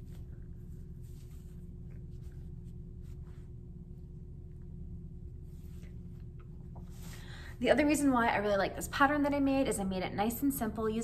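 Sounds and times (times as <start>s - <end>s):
soft fabric rustles: 0.0s - 7.8s
steady low hum: 0.0s - 11.0s.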